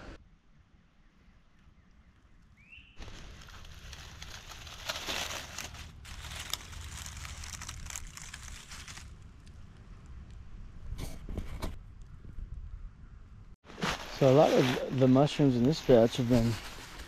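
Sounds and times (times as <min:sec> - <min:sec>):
dry leaves crackling and rustling: 0:03.0 - 0:09.8, 0:13.7 - 0:17.0.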